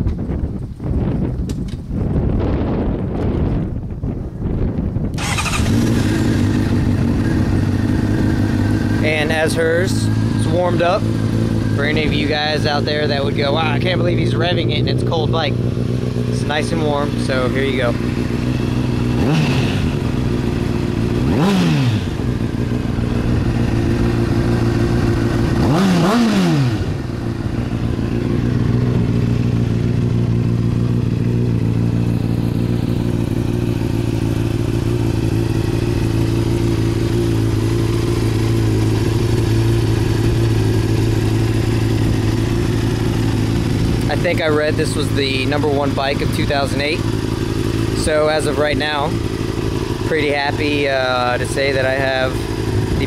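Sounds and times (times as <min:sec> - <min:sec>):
motorcycle engine idling: 0:05.1 - 0:53.0
motorcycle engine revving: 0:05.1 - 0:53.0.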